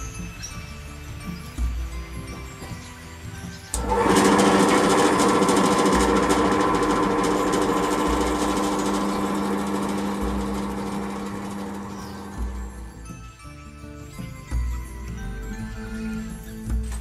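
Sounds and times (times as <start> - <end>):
drill press drilling wood: 3.8 - 12.9.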